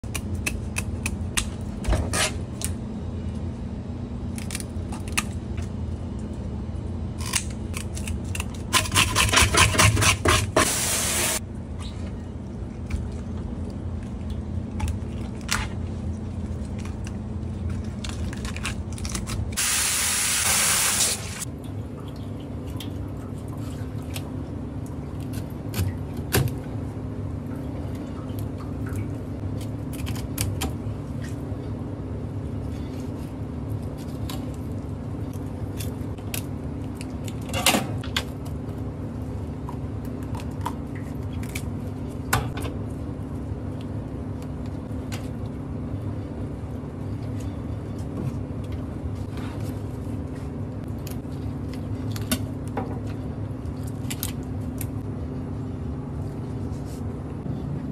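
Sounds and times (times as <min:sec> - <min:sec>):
low machine hum: 0:00.0 - 0:57.9
sink sprayer hissing: 0:10.4 - 0:11.4, 0:19.6 - 0:21.4.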